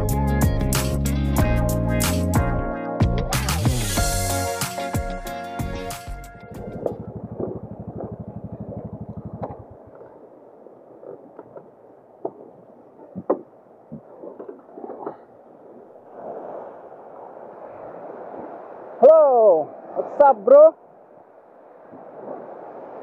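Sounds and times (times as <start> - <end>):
small waves washing on shore: 4.0 - 23.0
knocks and clicks: 6.6 - 9.7
motorcycle engine idling: 6.6 - 10.0.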